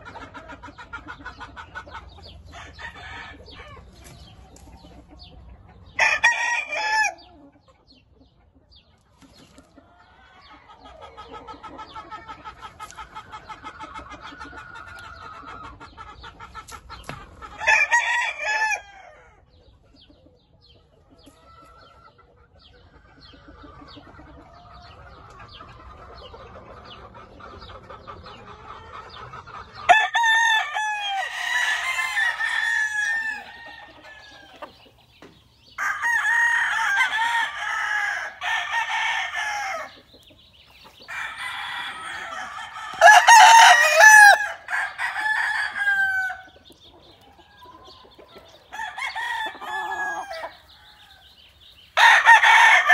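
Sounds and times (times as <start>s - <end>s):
roosters crowing: 0.0s - 4.0s, 5.9s - 7.4s, 17.2s - 19.4s, 29.7s - 52.9s.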